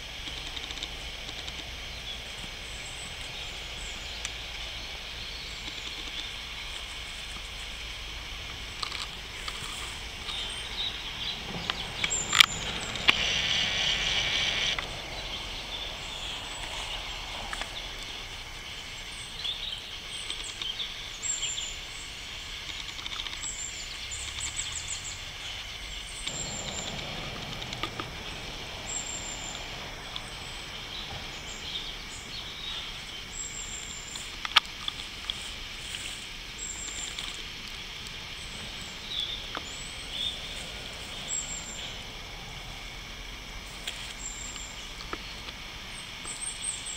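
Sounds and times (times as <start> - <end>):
hiss: 0.0 - 46.9
outdoor background noise: 0.0 - 46.9
sharp clicks: 0.2 - 1.7.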